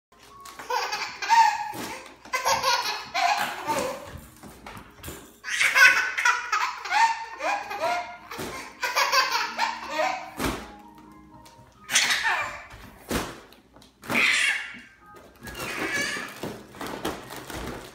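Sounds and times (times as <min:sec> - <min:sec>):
infant laughing: 0:00.6 - 0:04.2, 0:05.4 - 0:10.4, 0:11.9 - 0:12.8.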